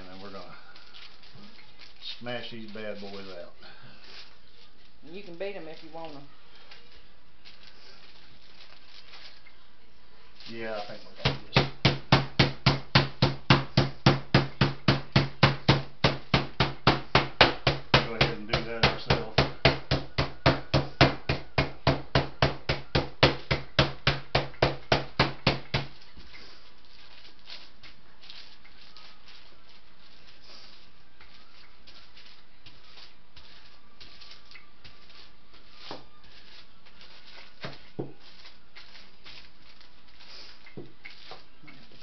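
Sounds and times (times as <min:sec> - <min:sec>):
rolling pin thumping meat: 0:11.2 - 0:26.1, 0:35.5 - 0:39.3.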